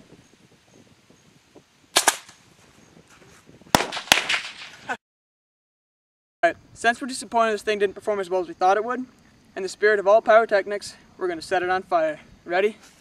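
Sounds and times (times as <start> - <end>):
rocket hiss: 1.9 - 2.6, 3.7 - 5.0
bottle rockets popping and banging: 3.8 - 5.0.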